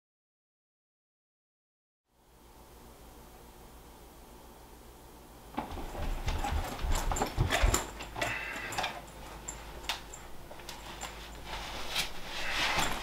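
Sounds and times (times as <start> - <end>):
bag clicks and rustles: 5.6 - 13.0.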